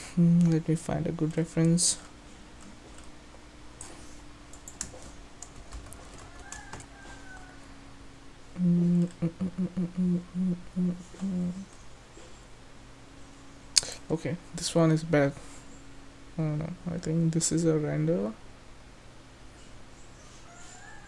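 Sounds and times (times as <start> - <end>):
keyboard typing and clicks: 4.5 - 6.9
man humming: 8.5 - 11.7.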